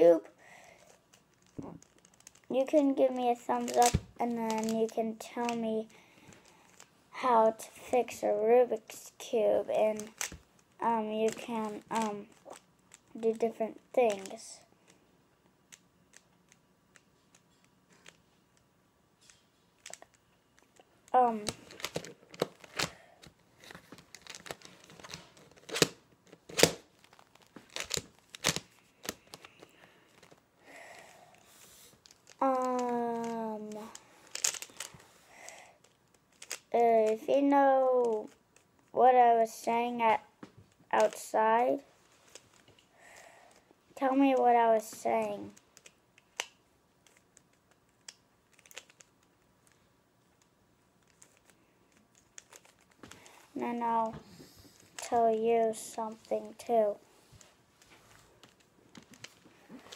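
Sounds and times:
puzzle cube clicking and scraping: 0.4s - 6.9s, 7.7s - 14.6s, 15.7s - 18.4s, 19.2s - 37.3s, 37.9s - 38.9s, 43.5s - 49.8s, 50.4s - 54.1s
puzzle cube layers clicking: 3.1s - 6.8s, 10.0s - 14.4s, 26.5s - 29.6s, 32.0s - 35.0s, 35.8s - 37.2s, 45.5s - 49.8s.

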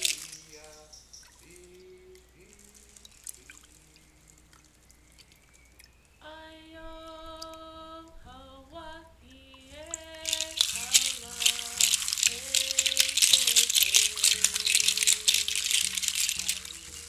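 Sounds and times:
woman singing long notes: 6.2s - 14.2s
faint clicks: 6.9s - 8.3s.

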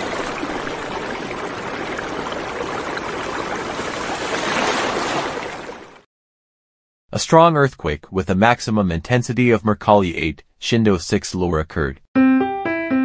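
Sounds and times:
water rushing: 0.0s - 6.0s.

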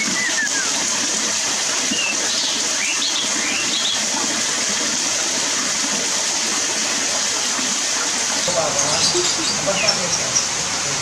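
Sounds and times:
high bird chirps: 0.0s - 0.8s
water rushing over rocks: 0.0s - 11.0s.

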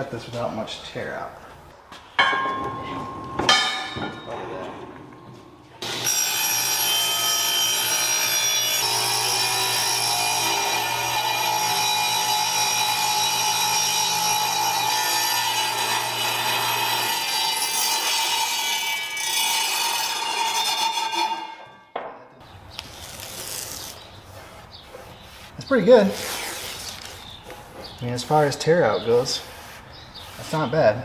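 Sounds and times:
table saw cutting: 5.8s - 21.6s.

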